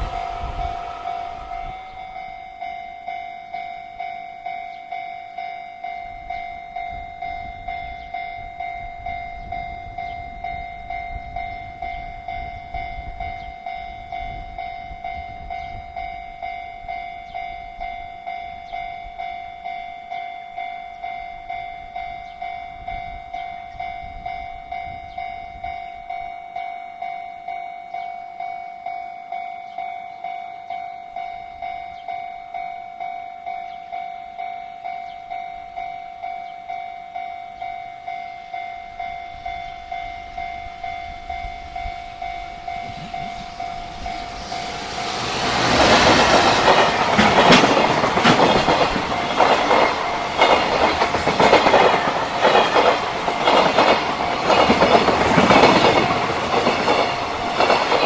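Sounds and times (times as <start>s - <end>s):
freight train passing: 0.0s - 58.0s
level crossing alarm bell: 0.0s - 58.0s
wheels clattering over rail joints: 43.8s - 58.0s.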